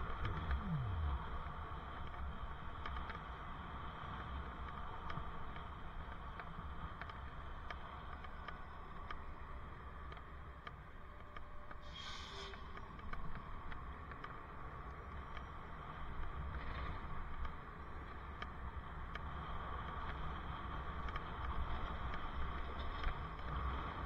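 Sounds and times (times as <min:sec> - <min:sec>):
road rumble: 0:00.0 - 0:08.2.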